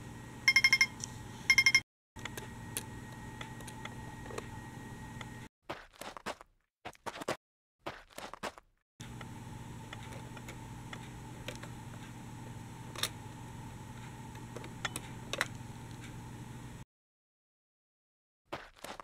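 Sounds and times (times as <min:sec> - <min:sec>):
low electrical hum: 0:00.0 - 0:05.5, 0:09.0 - 0:16.8.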